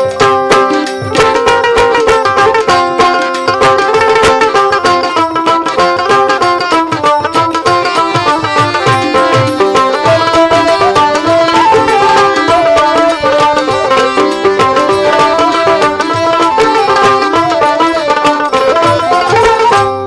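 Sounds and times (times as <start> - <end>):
plucked strings melody: 0.0 - 20.0
steady drum beat: 0.0 - 20.0
flute: 7.0 - 20.0.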